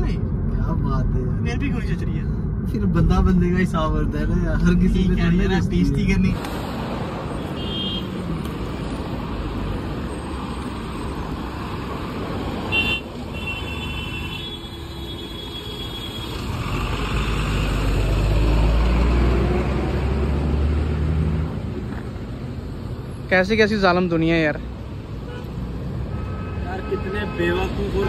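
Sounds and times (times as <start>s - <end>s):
highway traffic noise: 0.0s - 28.0s
vehicle horn honking: 7.5s - 8.2s, 12.7s - 16.3s.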